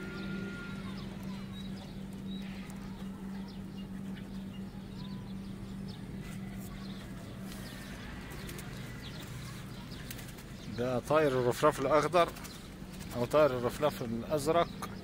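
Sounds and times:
faint bird chirps: 0.0 - 11.6
steady low hum: 0.0 - 15.0.

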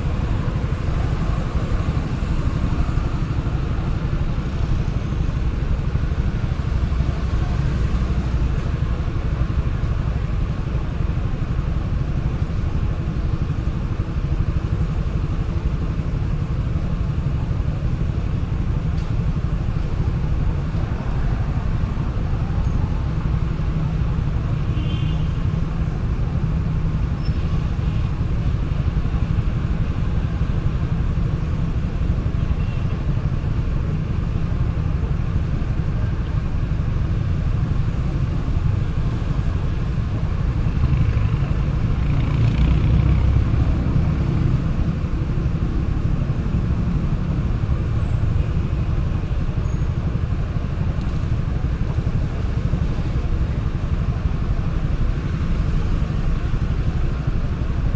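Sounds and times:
road traffic passing: 0.0 - 57.9.

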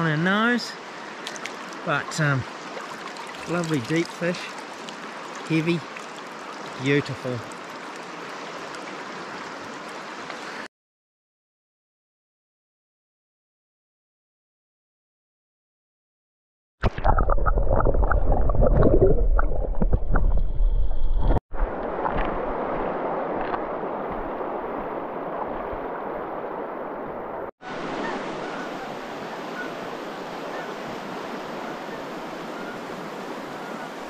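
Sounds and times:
river running over stones: 0.6 - 10.7, 21.6 - 34.0
muffled underwater river rushing: 16.8 - 34.0.

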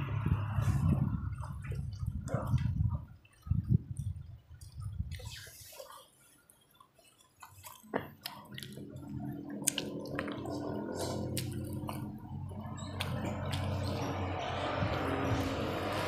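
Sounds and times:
wet chewing and mouth smacks: 3.9 - 16.0
low steady hum: 7.9 - 16.0.

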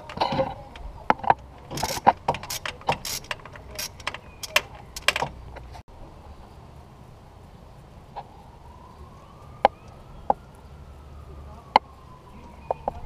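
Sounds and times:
socket ratchet clicking: 1.7 - 5.4.

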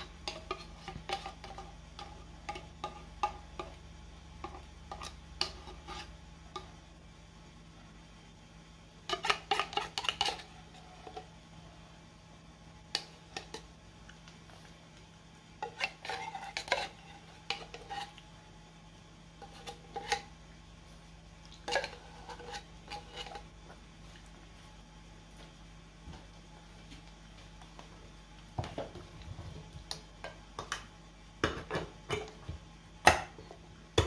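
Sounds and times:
metal spoon scraping tin can: 9.1 - 11.2, 15.6 - 18.2, 19.4 - 20.3, 21.6 - 23.4.

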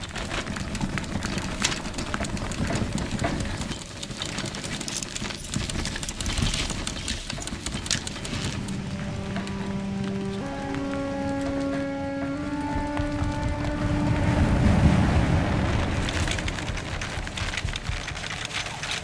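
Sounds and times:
rattling and clicking: 0.0 - 14.2, 15.6 - 19.0
low engine rumble: 8.2 - 18.6.

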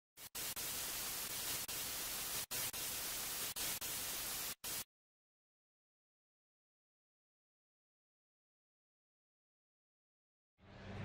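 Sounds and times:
television static hiss: 0.2 - 4.8.

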